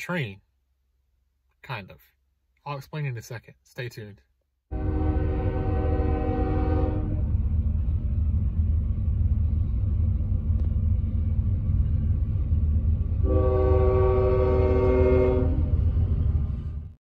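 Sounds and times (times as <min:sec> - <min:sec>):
multi-note air horn: 0:04.7 - 0:07.3, 0:13.2 - 0:15.7
diesel locomotive rumbling: 0:04.7 - 0:17.0.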